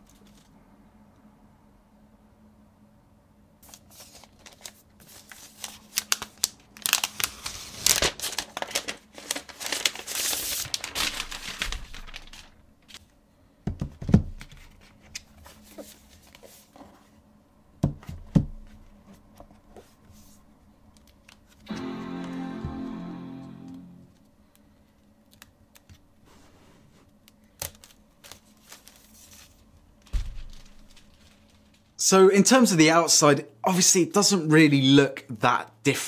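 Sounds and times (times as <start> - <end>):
packaging wrap crinkling: 3.6 - 13.0, 27.6 - 32.0.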